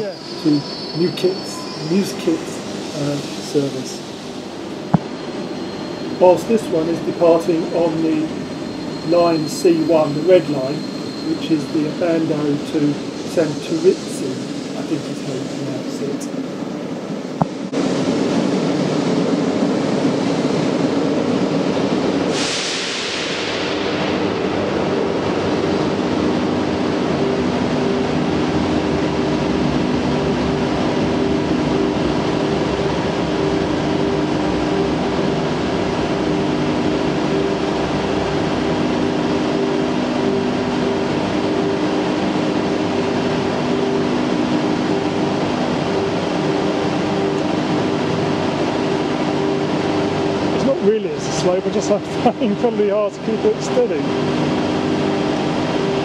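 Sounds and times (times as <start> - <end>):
electric train hum: 0.0 - 56.0
train running gear rumble: 0.0 - 56.0
burst of hiss: 22.3 - 23.9.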